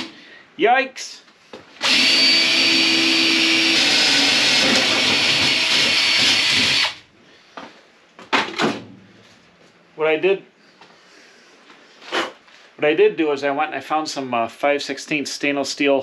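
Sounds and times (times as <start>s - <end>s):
electric drill boring through steel: 1.8s - 7.0s.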